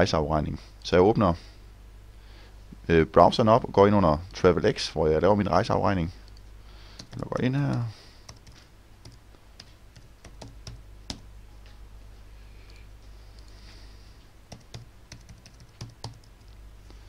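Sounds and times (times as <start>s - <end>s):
low steady hum: 0.0s - 17.0s
computer keyboard typing: 7.0s - 11.2s, 14.5s - 16.5s.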